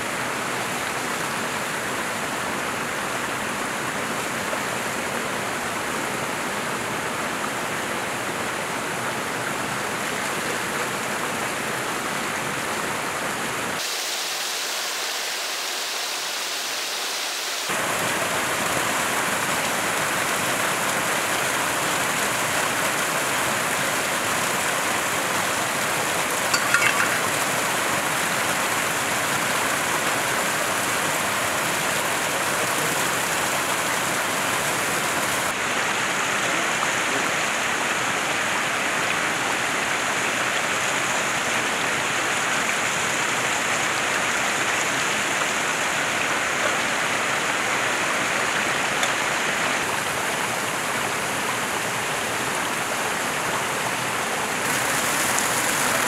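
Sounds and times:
waterfall and stream running: 0.0 - 56.0.

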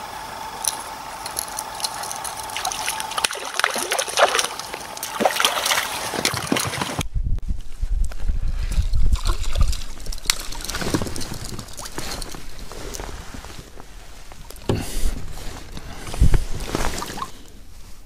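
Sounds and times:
low rumbling handling noise: 0.6 - 18.0
water splashing and sloshing: 1.4 - 7.0, 8.8 - 17.4.

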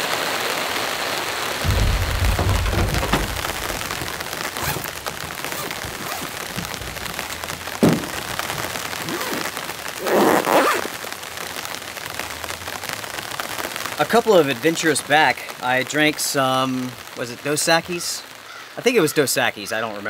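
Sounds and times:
steady rain falling: 0.0 - 20.0
low rumble: 1.6 - 5.2
cooler bag rustling: 2.0 - 9.5.

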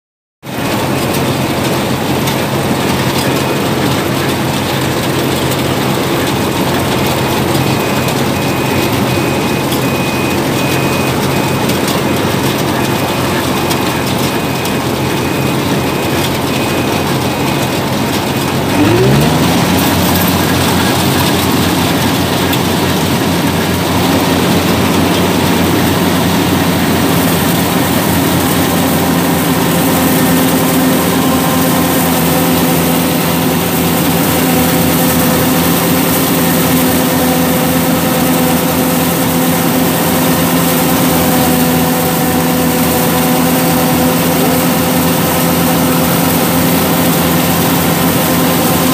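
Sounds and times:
combine harvester engine running: 0.4 - 48.9
high intermittent beep: 6.7 - 35.7.

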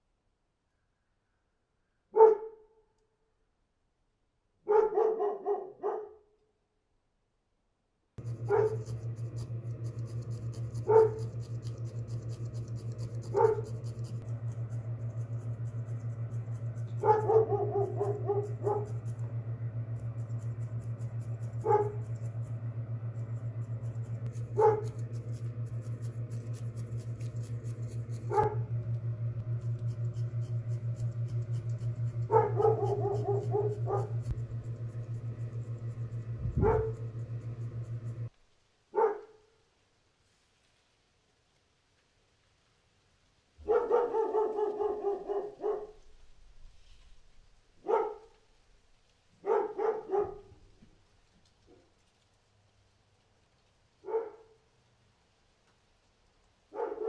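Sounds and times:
dog barking: 2.1 - 2.8, 4.6 - 6.4, 8.3 - 9.0, 10.8 - 11.4, 13.2 - 13.8, 16.8 - 19.0, 21.6 - 22.1, 24.6 - 25.0, 28.3 - 28.7, 32.3 - 34.3, 36.5 - 37.2, 38.9 - 39.6, 43.6 - 46.0, 47.8 - 48.3, 49.4 - 50.6, 54.0 - 54.6, 56.7 - 57.0
felting needle rapid clicking: 8.2 - 19.2, 23.1 - 28.5
steady low hum: 8.2 - 38.7.

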